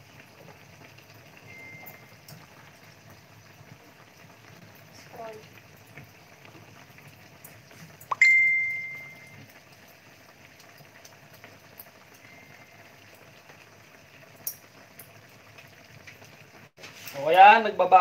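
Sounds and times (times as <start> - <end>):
faint bubbling in wok: 0.0 - 17.1.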